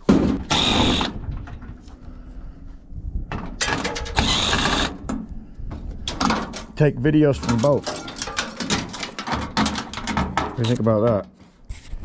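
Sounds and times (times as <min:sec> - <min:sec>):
cordless drill running: 0:00.5 - 0:01.2, 0:04.2 - 0:05.0.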